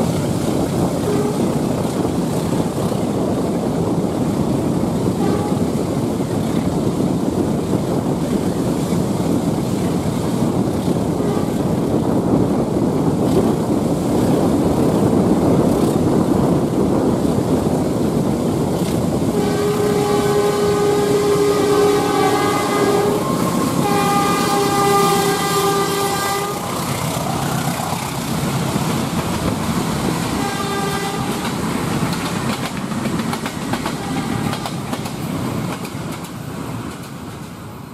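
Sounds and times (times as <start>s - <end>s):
train rumble: 0.0s - 37.9s
wind and road noise: 0.0s - 37.9s
locomotive air horn blasts: 1.0s - 1.6s, 5.2s - 5.8s, 11.2s - 11.7s, 19.3s - 27.1s, 30.4s - 31.5s, 34.0s - 34.8s.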